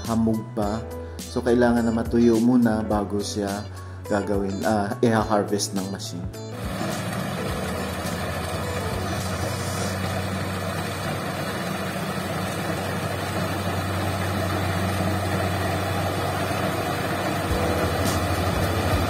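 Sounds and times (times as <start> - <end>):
combine harvester engine running: 6.6 - 19.0.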